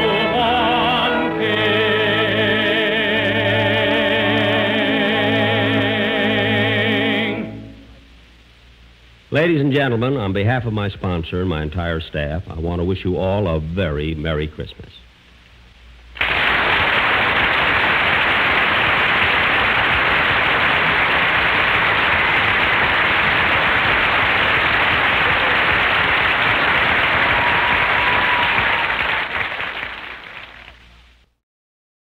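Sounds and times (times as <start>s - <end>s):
audience applauding: 16.2s - 30.9s.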